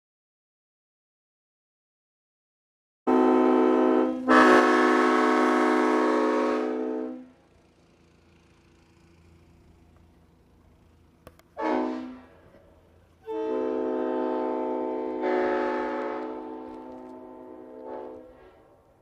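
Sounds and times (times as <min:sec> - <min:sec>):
multi-tone air horn blasts: 0:03.1 - 0:07.5, 0:11.5 - 0:12.6, 0:13.2 - 0:19.0.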